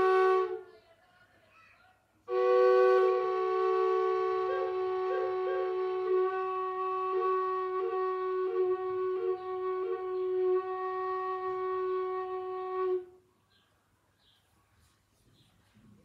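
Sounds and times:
wooden drone flute: 0.0 - 0.6, 2.3 - 13.1.

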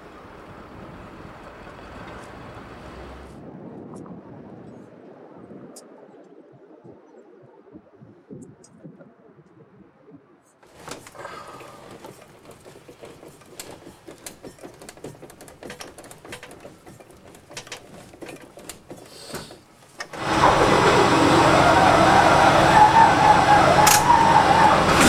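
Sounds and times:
faint clicking and knocking: 10.7 - 20.2
propeller engine running: 20.2 - 25.0.

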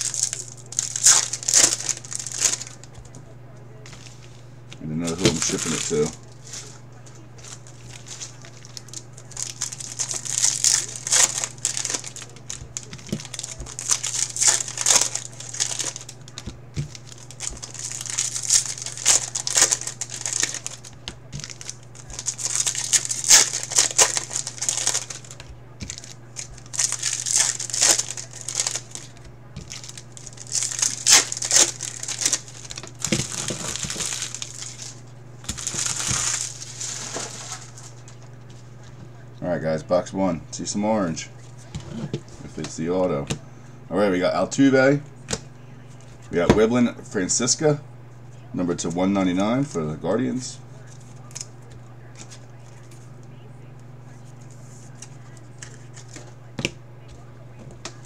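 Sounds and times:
foil wrappers crinkling: 0.0 - 39.2, 50.8 - 58.0
steady low hum: 0.0 - 58.0.

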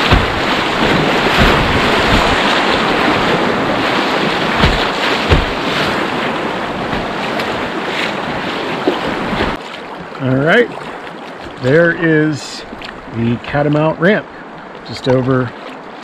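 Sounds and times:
low thumps: 0.0 - 7.7
wind on microphone: 0.0 - 9.6
river rapids rushing and splashing: 0.0 - 10.0.

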